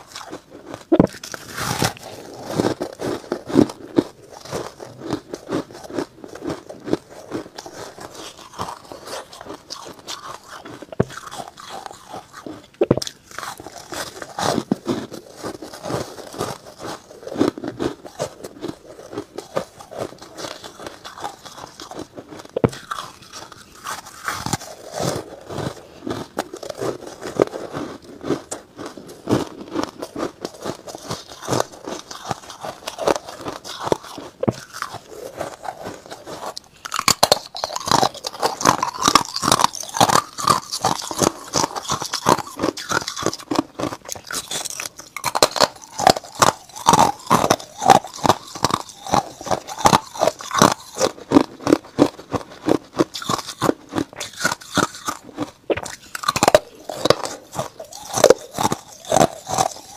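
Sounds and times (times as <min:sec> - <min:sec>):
ice crunching and chewing: 0:00.0 - 0:59.9.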